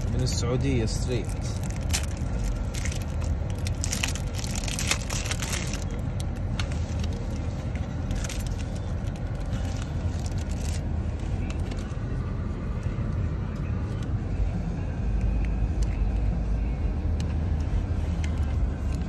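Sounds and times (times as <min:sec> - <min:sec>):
low car rumble: 0:00.0 - 0:19.0
cellophane wrapper crinkling: 0:01.1 - 0:07.4, 0:08.0 - 0:10.8.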